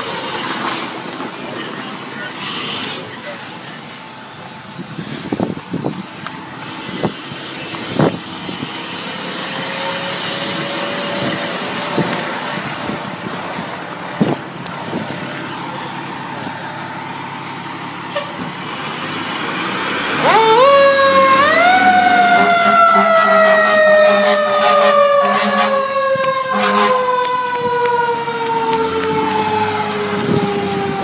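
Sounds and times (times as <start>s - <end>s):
diesel truck engine: 0.0s - 31.0s.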